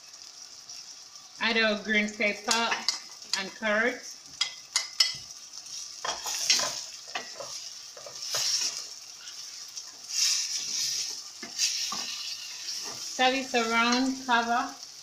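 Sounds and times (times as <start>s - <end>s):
vegetables sizzling in a pan: 0.0s - 15.0s
wooden spoon scraping a pan: 4.4s - 14.3s.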